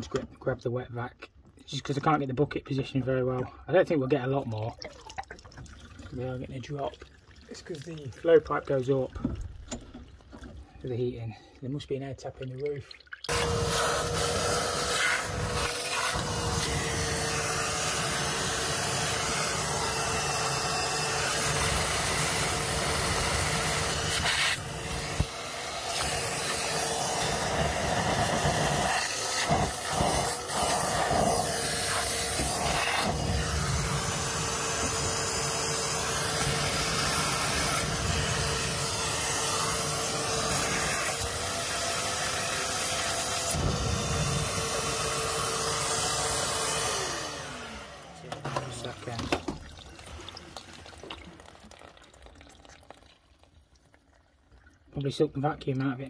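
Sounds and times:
vacuum sucking water: 13.2 - 53.0
wet and dry vacuum whining: 13.3 - 50.6.

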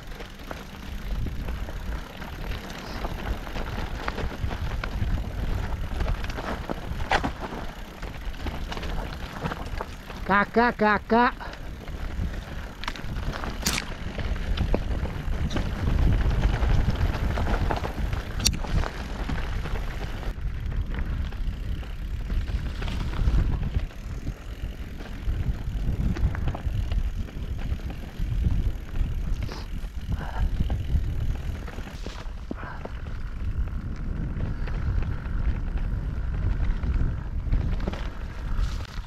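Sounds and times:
tyres crunching over stones: 0.0 - 10.3, 11.5 - 30.0
wind rumble on microphone: 0.0 - 10.3, 11.4 - 39.0
bike rattling: 0.0 - 39.0.

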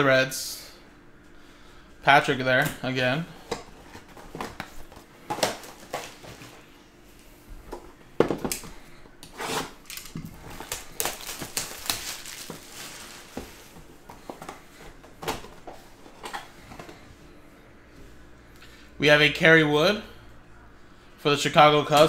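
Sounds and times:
plastic rustling: 3.7 - 6.7, 9.4 - 16.8.

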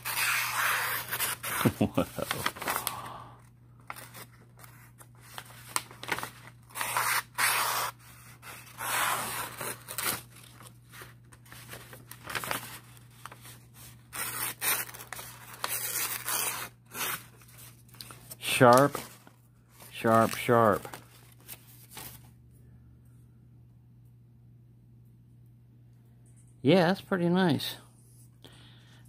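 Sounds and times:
knife slicing paper: 0.0 - 2.3, 6.0 - 10.5, 11.9 - 17.6.

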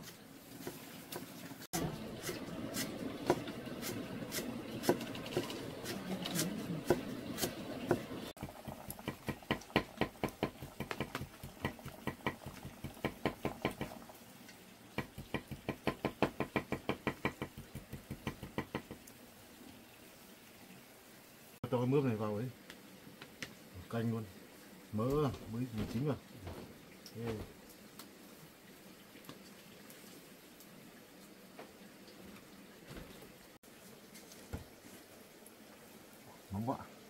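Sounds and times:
kitchen knocks and clatter: 7.9 - 14.0
knife chopping on wooden board: 9.0 - 13.9.

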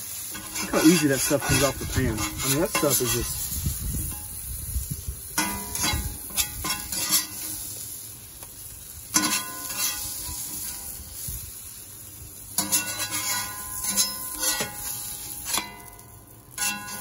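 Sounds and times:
oil and vegetables sizzling: 0.0 - 17.0
metal spatula scraping pan: 0.2 - 4.4, 5.4 - 7.8, 9.1 - 11.3, 12.6 - 17.0.

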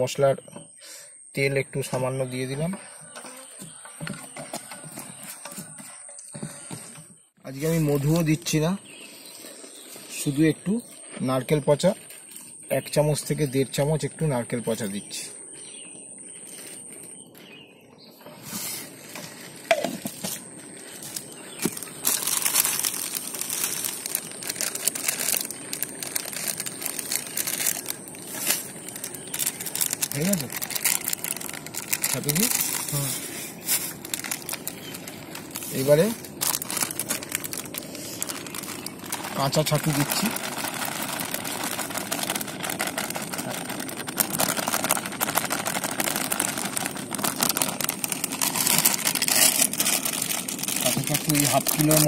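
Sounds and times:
hand kneading wet bait mash: 18.4 - 52.0
plastic packet crinkling: 19.2 - 52.0.

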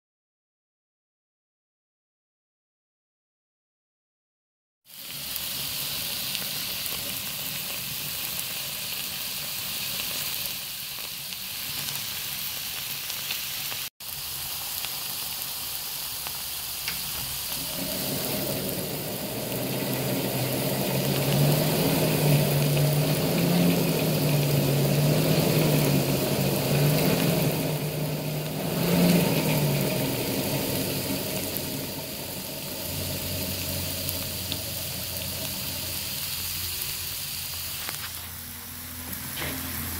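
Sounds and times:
borax sizzling in a pan: 4.9 - 39.9
low wavering hum: 17.5 - 37.0.

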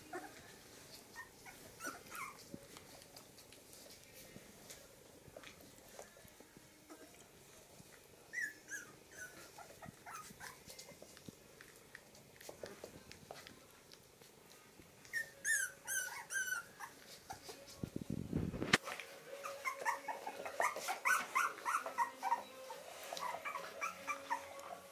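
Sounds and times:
puppies squeaking and whimpering: 1.1 - 2.5, 8.3 - 11.1, 15.1 - 17.6, 19.4 - 24.9.

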